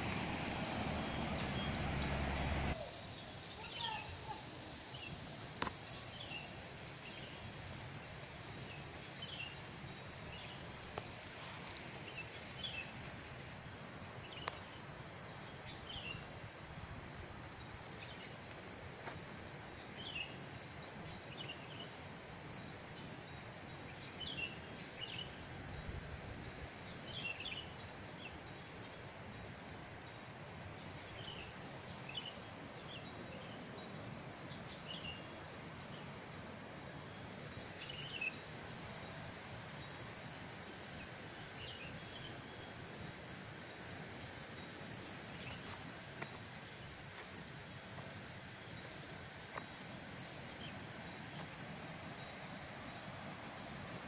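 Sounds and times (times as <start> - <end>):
high-pitched insect drone: 0.0 - 16.6, 31.0 - 54.0
short insect chirps: 0.0 - 22.0, 30.0 - 54.0.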